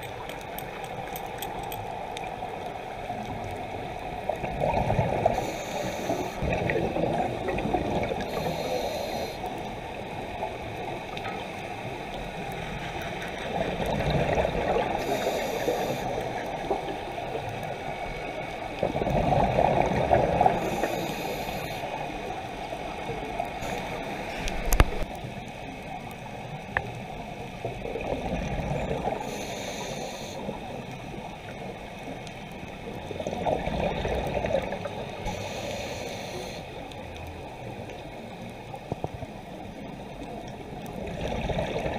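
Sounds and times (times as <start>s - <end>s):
regulator bubbles rushing underwater: 0.0s - 41.9s
hiss bursts: 5.4s - 6.4s, 8.3s - 9.5s, 15.0s - 16.2s, 20.6s - 22.0s, 29.2s - 30.4s, 35.3s - 36.7s.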